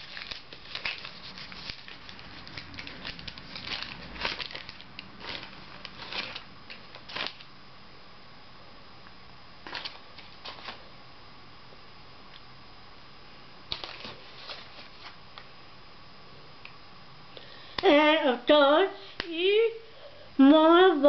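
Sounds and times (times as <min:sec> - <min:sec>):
paper wrapping crinkling: 0:00.0 - 0:07.5, 0:09.6 - 0:10.8, 0:13.7 - 0:15.5.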